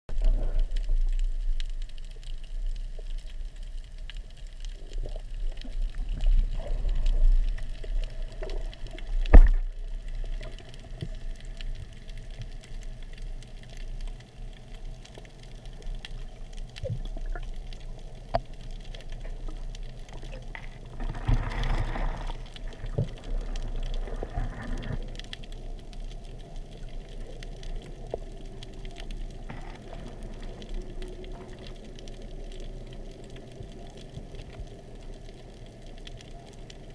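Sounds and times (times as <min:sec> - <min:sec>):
low underwater rumble: 0:00.1 - 0:36.9
faint clicks: 0:00.3 - 0:36.9
water rushing: 0:16.7 - 0:25.7.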